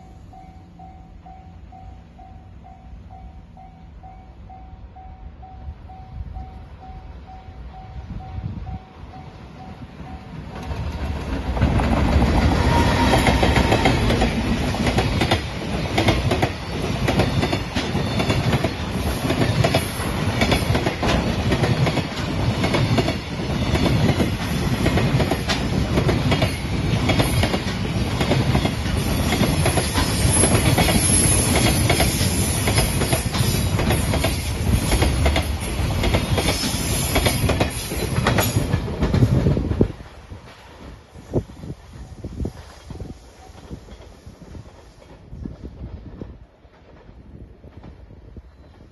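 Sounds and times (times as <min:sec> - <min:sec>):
freight train heavy rumble: 0:00.0 - 0:48.9
wheels clicking over rail joints: 0:10.4 - 0:40.9.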